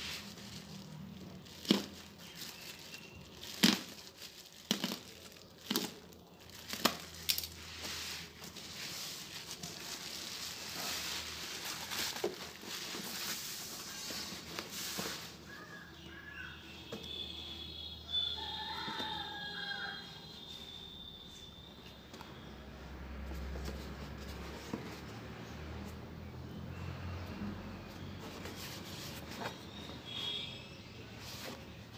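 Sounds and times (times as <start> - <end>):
bubble wrap cracks: 0.0 - 7.6
bubble wrap crinkling: 0.0 - 15.8.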